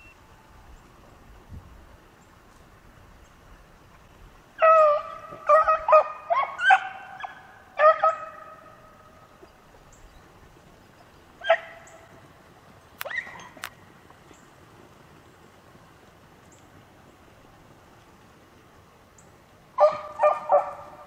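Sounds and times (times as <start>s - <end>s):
dogs baying: 19.8s - 21.0s.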